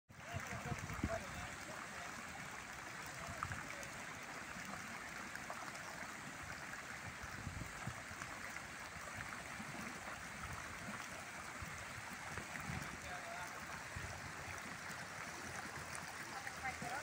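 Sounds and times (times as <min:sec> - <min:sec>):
fountain water splashing on paving: 0:00.1 - 0:17.0.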